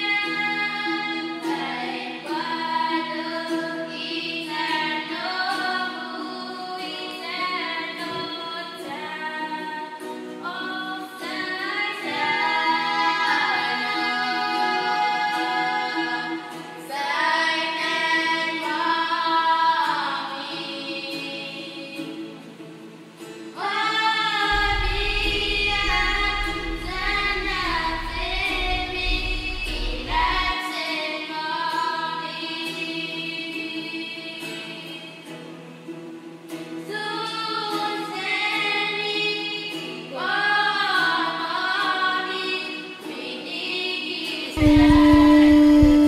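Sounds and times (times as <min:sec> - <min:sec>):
choir singing slow melody: 0:00.0 - 0:35.6, 0:36.5 - 0:46.0
low bass layer: 0:24.5 - 0:30.5, 0:44.6 - 0:46.0
conch shell blast: 0:44.6 - 0:46.0.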